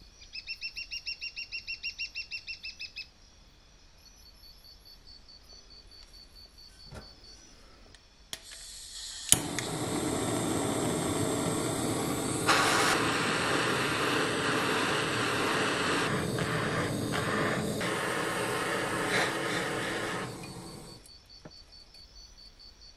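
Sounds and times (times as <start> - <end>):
torch ignition click: 8.3 - 21.1
torch flame hissing: 8.4 - 21.1.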